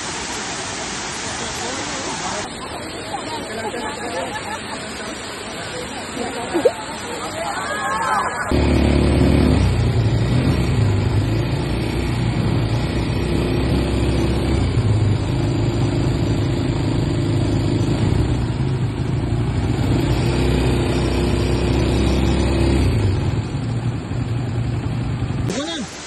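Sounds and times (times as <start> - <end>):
atv engine running: 8.4 - 25.5.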